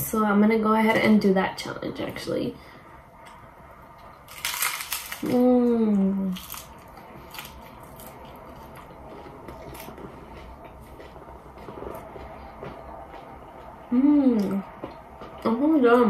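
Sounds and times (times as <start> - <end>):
taco shell crunch: 4.3 - 5.4, 6.3 - 11.7
chewing with small crunches: 6.3 - 15.5
person humming mmm: 13.9 - 14.7.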